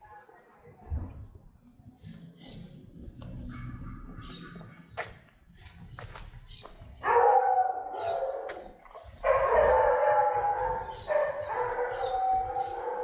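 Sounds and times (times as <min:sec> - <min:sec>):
dog howling: 0:09.3 - 0:13.0.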